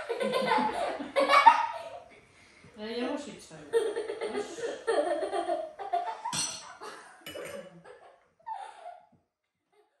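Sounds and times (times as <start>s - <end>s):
clinks of glasses and plates: 6.3s - 7.7s.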